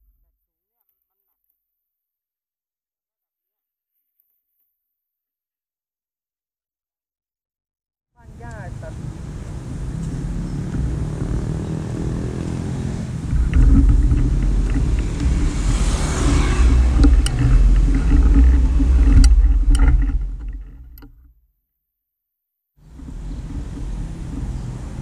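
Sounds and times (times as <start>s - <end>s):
rush of noise: 8.6s - 20.6s.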